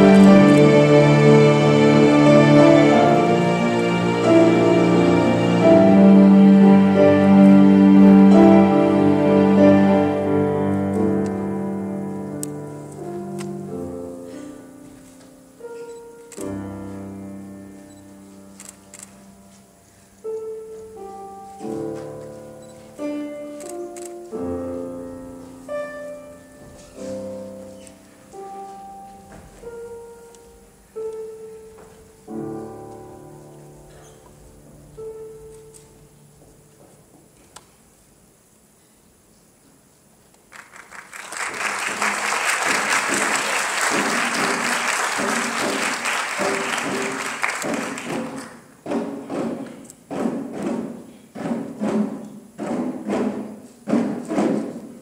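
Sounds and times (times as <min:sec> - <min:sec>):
slow classical piano music: 0:00.0 - 0:55.0
audience applauding: 0:40.4 - 0:48.7.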